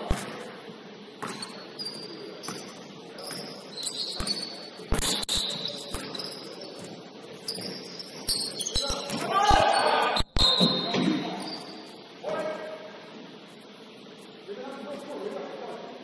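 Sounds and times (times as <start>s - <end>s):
basketball bouncing: 1.2s - 1.5s
sneakers squeaking on hardwood: 1.2s - 12.1s.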